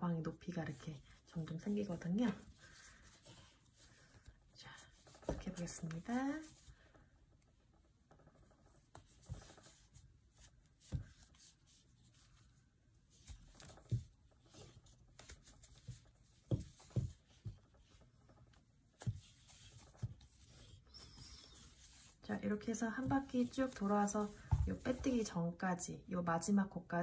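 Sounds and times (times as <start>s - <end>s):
yarn rustling: 0.7s - 25.4s
soft knocks and taps: 10.8s - 11.6s, 13.2s - 20.8s.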